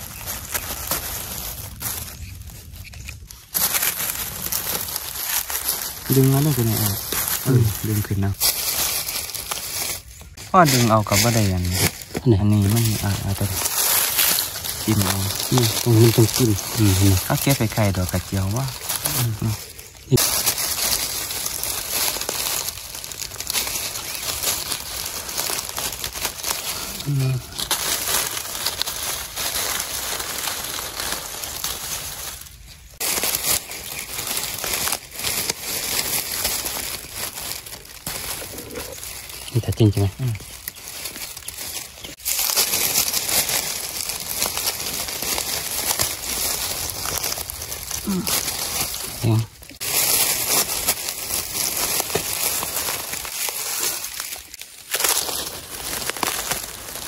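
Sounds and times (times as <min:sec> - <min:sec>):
dry leaves rustling and crackling: 0:00.0 - 0:57.0.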